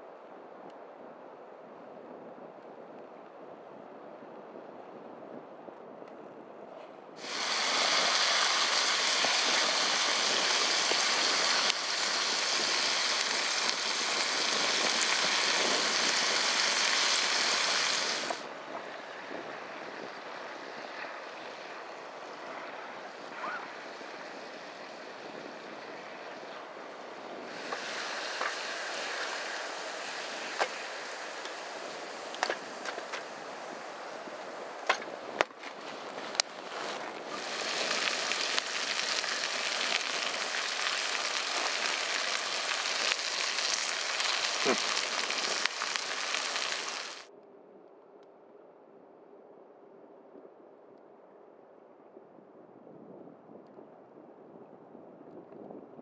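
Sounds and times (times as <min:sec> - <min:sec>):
rushing stream water: 0:07.2 - 0:19.1, 0:27.5 - 0:35.4, 0:36.0 - 0:47.3
sharp clicks and cracks: 0:32.3 - 0:33.3.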